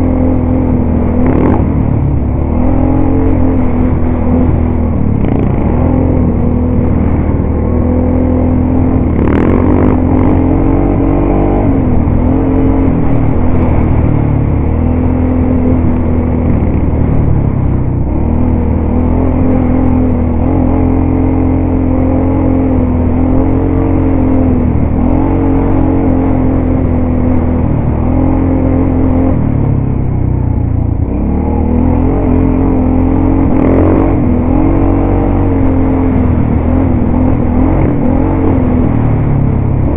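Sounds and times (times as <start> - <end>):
atv engine revving: 0.0 - 39.9.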